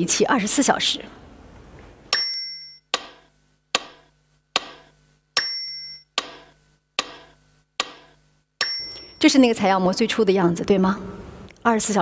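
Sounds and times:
short high ringing tone: 5.4s - 6.1s, 8.6s - 9.3s.

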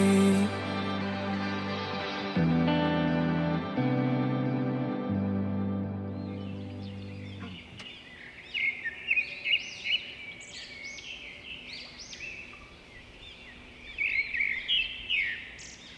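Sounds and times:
small birds chirping: 5.8s - 15.9s.

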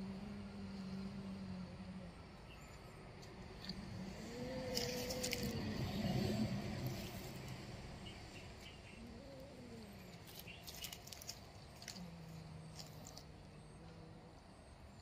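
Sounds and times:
dry leaves crackling under paws: 4.6s - 6.1s, 9.5s - 13.4s.

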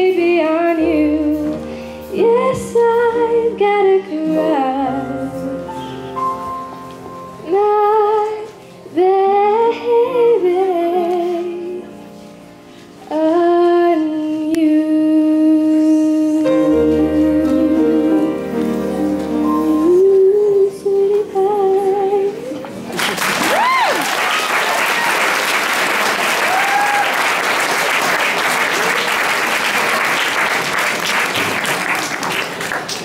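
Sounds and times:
woman singing with vibrato: 0.0s - 5.8s, 7.4s - 12.0s, 13.1s - 22.8s
jazz accompaniment chord: 0.0s - 8.3s, 16.0s - 22.9s
audience applause and cheering: 22.9s - 33.0s.

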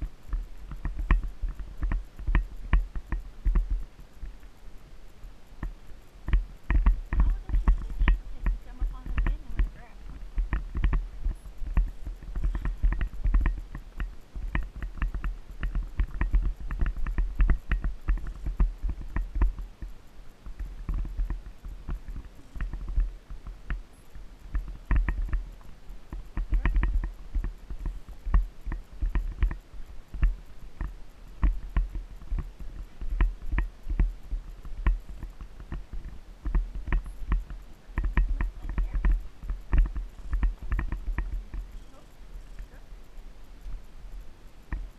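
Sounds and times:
constant low rumble: 0.0s - 44.9s
horse hooves on dirt trail: 0.0s - 44.9s.

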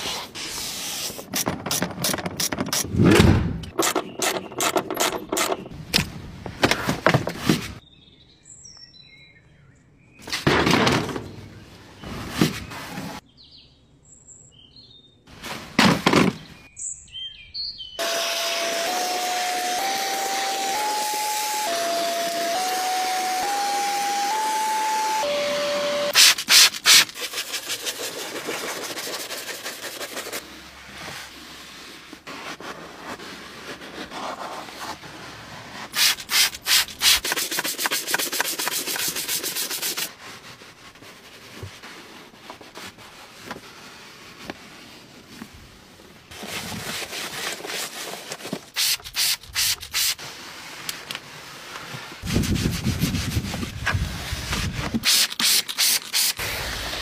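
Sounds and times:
vacuum nozzle hissing over carpet: 18.0s - 26.4s
spray bottle squirting: 26.1s - 27.6s, 35.9s - 40.1s, 48.7s - 50.2s, 55.0s - 56.4s
scrubbing and wiping plastic: 26.2s - 57.0s.

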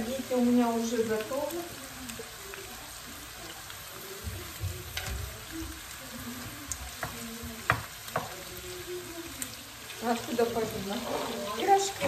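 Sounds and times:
shrimp sizzling in a pan: 0.0s - 12.0s
spatula knocking against pan: 7.0s - 8.4s.

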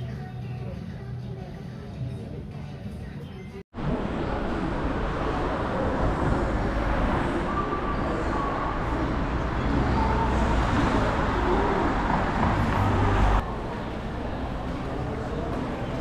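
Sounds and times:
passing cars rumbling: 3.8s - 16.0s.

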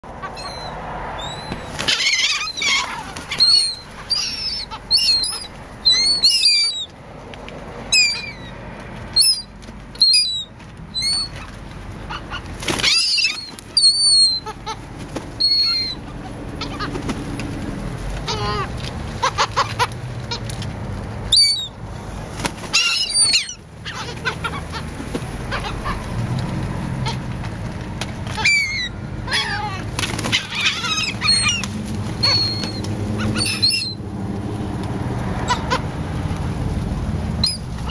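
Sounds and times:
gulls squealing: 0.0s - 6.9s, 7.9s - 14.8s, 15.4s - 17.2s, 18.2s - 20.5s, 21.3s - 21.8s, 22.6s - 27.3s, 28.3s - 34.0s, 35.3s - 36.0s, 37.4s - 37.9s
wings flapping: 1.3s - 6.6s, 8.0s - 37.9s.

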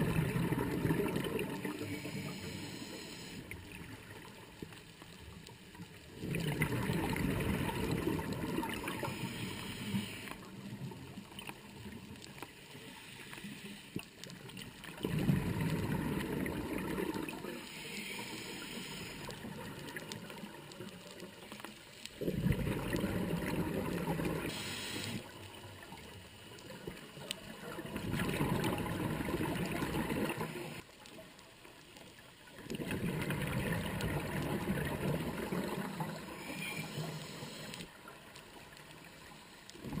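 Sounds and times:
diver exhaling bubbles underwater: 0.0s - 2.3s, 6.2s - 9.4s, 14.9s - 17.5s, 22.2s - 24.6s, 27.7s - 30.8s, 32.7s - 37.6s, 39.8s - 40.0s.

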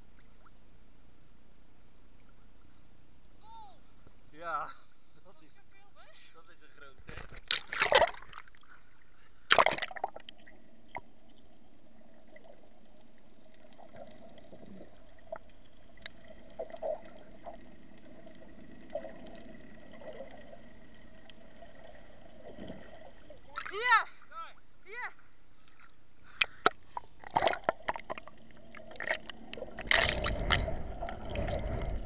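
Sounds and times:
faint bubbling blips and clicks: 0.0s - 0.9s, 7.0s - 23.8s, 25.5s - 32.0s
sea water splashing: 7.5s - 24.2s, 25.6s - 32.0s
muffled underwater hush: 25.6s - 32.0s.

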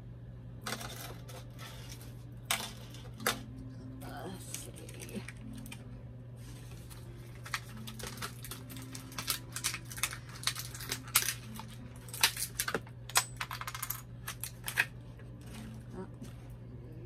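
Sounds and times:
steady low hum: 0.0s - 17.0s
toy packaging crinkling: 6.6s - 12.9s.

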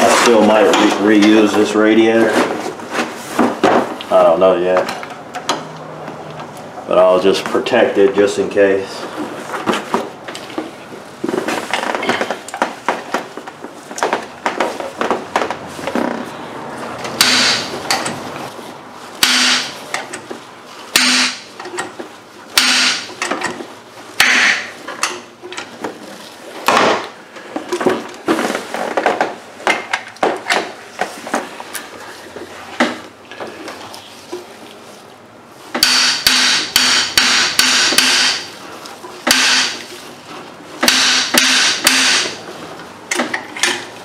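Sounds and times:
hammer striking metal wrench: 17.2s - 17.7s, 19.2s - 19.7s, 21.0s - 21.4s, 22.6s - 23.1s, 35.8s - 38.5s, 39.3s - 39.8s, 40.8s - 42.4s.

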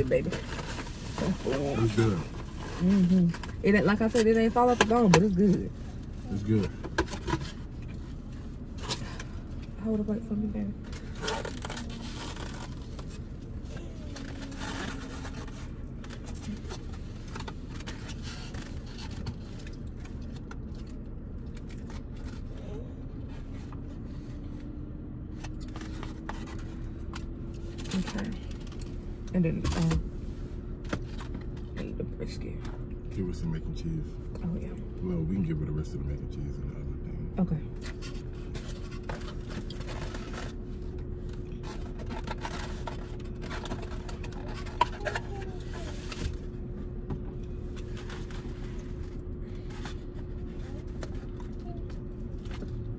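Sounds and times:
car engine rumble: 0.0s - 52.9s
food containers rustling: 37.8s - 52.9s.

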